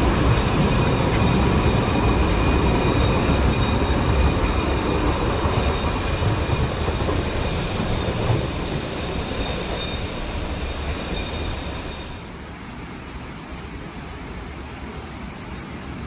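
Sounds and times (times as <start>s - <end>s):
high thin wheel squeal: 0.4s - 12.3s
running water hiss: 7.5s - 16.0s.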